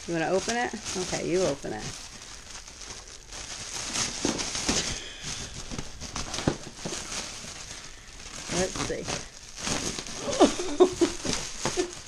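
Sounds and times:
cellophane crinkling and crackling: 0.0 - 12.0.

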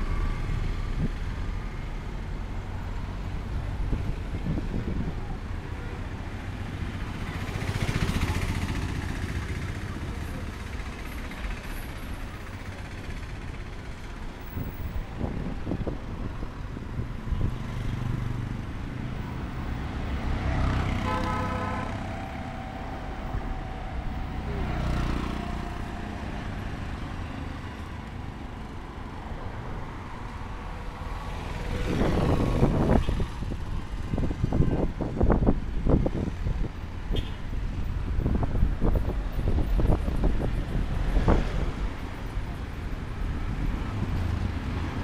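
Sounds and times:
traffic rumble: 0.0 - 45.0
vehicle passing close: 17.4 - 27.8
horn tone: 20.8 - 24.7.

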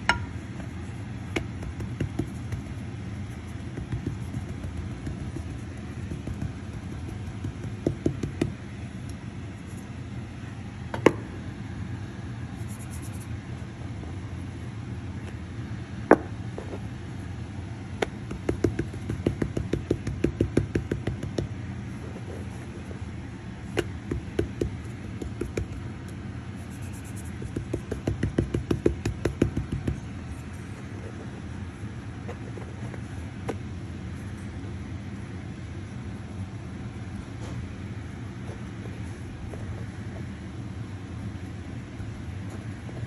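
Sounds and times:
hands patting dough on wood: 0.0 - 10.0, 17.9 - 23.0, 23.7 - 33.7
low background rumble: 0.0 - 43.0.

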